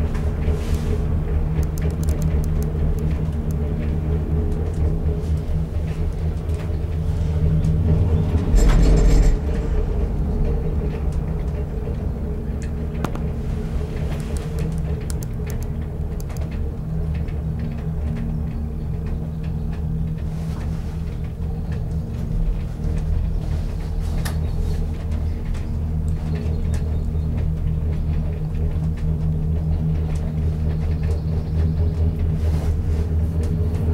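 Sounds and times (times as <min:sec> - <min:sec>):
gondola cabin rumble and hum: 0:00.0 - 0:33.9
light clicks and rattles: 0:01.5 - 0:03.9, 0:12.6 - 0:32.4.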